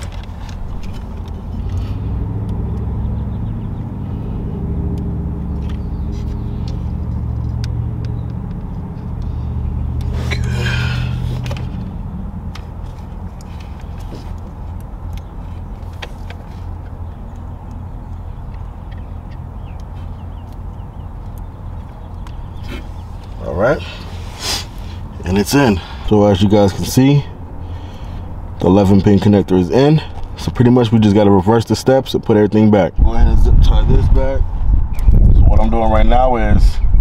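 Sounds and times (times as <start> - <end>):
wiring connector clicks and rattles: 0.0 - 2.9, 4.9 - 9.3, 11.3 - 22.5
vehicle engine rumbling: 0.0 - 37.0.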